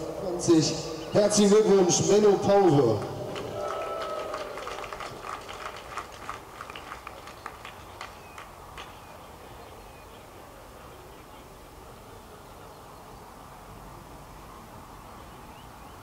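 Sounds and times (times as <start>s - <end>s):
crowd clapping: 2.7s - 9.1s.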